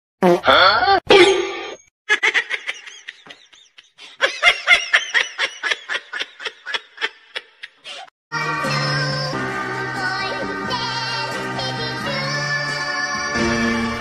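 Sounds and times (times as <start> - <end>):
person laughing: 0.2 - 1.3, 2.1 - 8.1.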